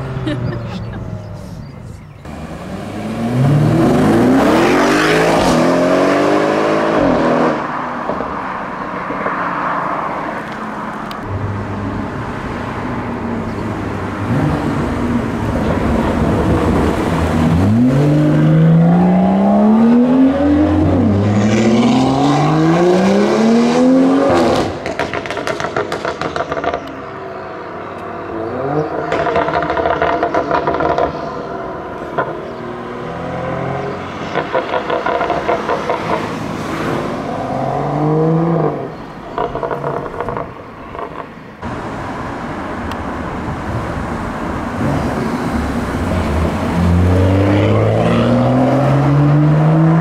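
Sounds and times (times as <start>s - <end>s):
car engine accelerating hard: 2.2s - 8.3s, 11.1s - 26.9s, 43.5s - 50.0s
exhaust crackles and pops: 24.6s - 27.0s.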